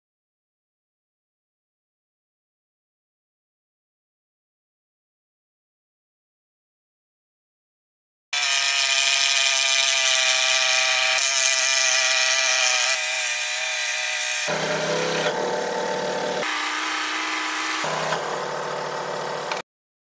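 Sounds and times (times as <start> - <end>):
scroll saw cutting wood: 8.4 - 19.6.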